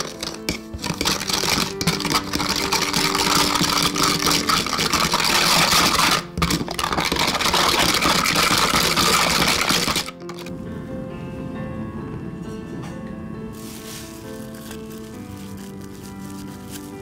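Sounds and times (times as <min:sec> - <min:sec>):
whisk scraping against glass: 0:00.0 - 0:10.5.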